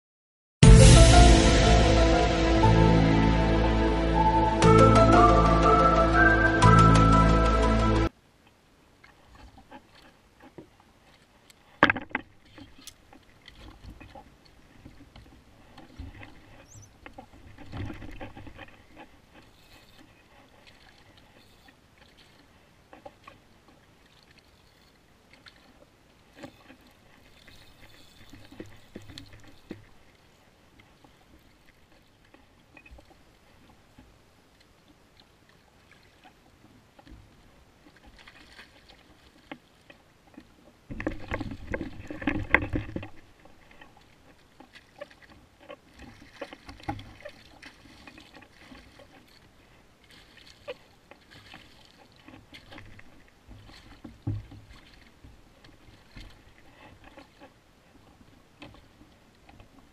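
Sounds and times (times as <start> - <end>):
knocks and clicks of tackle: 11.8 - 19.0, 39.4 - 49.4, 50.4 - 57.5
water slapping against hull: 35.5 - 59.9.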